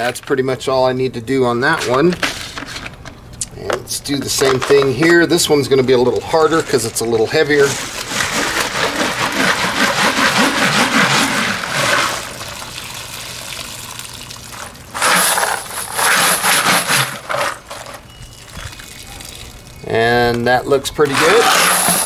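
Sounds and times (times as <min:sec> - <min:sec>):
water pouring off: 0:04.9 - 0:20.0
water splashing: 0:05.0 - 0:19.8.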